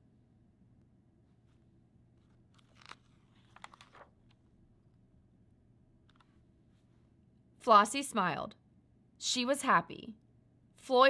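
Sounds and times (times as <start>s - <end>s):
paper page rustle: 2.2s - 4.4s.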